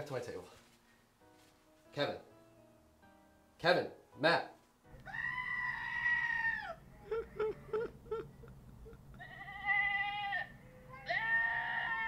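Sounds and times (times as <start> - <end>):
man laughing hard: 7.0 - 9.6.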